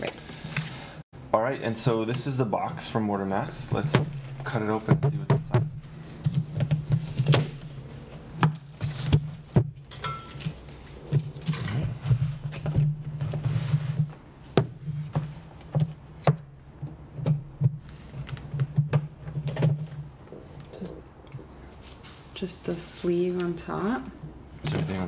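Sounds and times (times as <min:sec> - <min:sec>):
steady low hum: 0:00.9 - 0:15.6.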